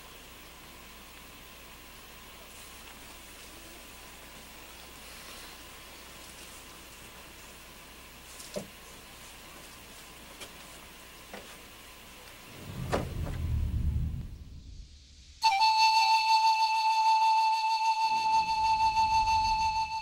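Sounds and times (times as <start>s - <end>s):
door scraping across floor: 12.5s - 14.7s.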